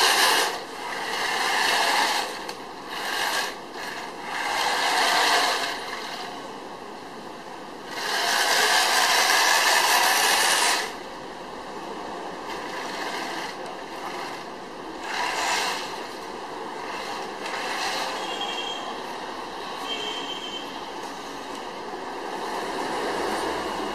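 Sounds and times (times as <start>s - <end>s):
toy tank grinding on asphalt: 0.0s - 6.5s, 7.8s - 11.0s, 12.4s - 18.8s.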